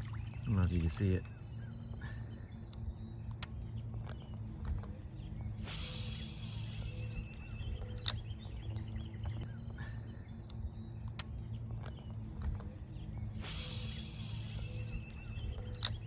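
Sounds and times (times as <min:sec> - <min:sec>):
sharp clicks: 0:07.2 - 0:08.5, 0:15.0 - 0:16.0.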